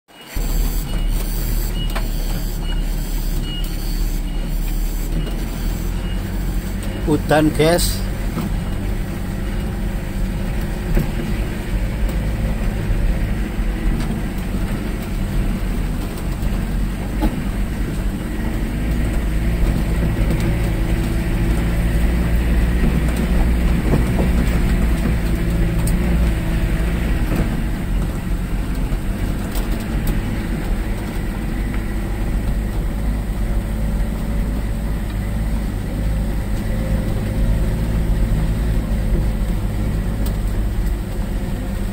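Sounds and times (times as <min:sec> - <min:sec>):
car engine running: 0:00.1 - 0:41.9
wheels knocking over bumps: 0:08.2 - 0:41.2.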